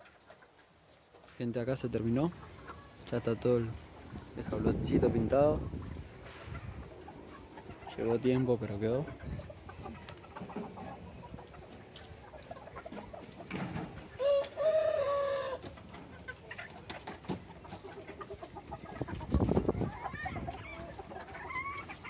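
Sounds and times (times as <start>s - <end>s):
chickens clucking: 0.0s - 22.0s
chicken long call: 14.1s - 15.8s.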